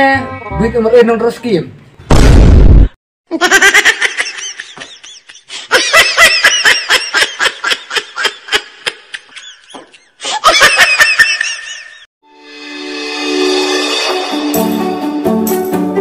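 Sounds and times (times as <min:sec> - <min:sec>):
music: 0:00.0 - 0:01.4, 0:12.2 - 0:16.0
high-pitched laughter: 0:03.3 - 0:12.0.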